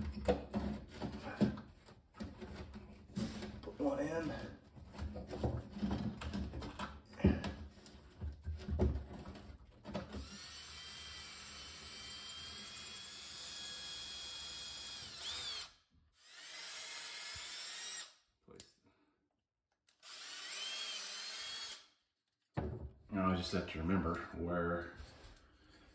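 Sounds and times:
knocks of handling wood: 4.7 - 10.2
cordless drill driving into wood: 10.1 - 18.2, 20.0 - 21.9.

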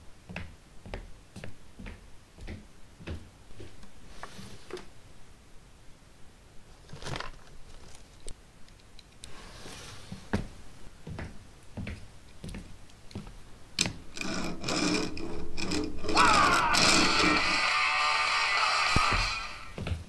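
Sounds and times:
dense mechanical rattling: 13.8 - 17.6.

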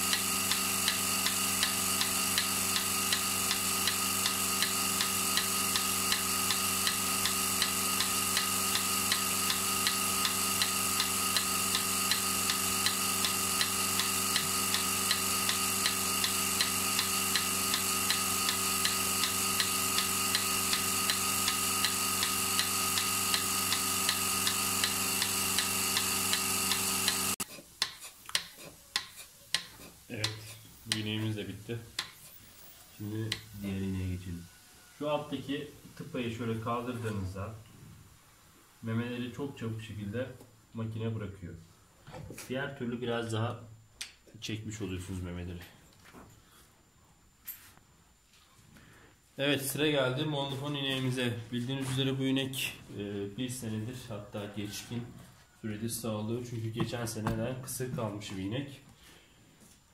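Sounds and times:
vacuum pump humming: 0.0 - 27.4.

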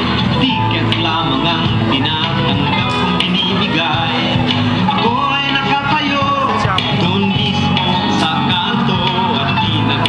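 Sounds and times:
guitar: 0.0 - 10.0
person singing: 0.0 - 10.0.

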